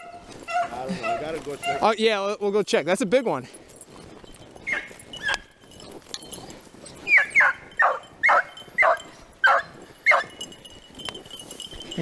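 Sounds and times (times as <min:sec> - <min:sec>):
dog barking: 0:00.0 - 0:01.9, 0:07.1 - 0:10.4.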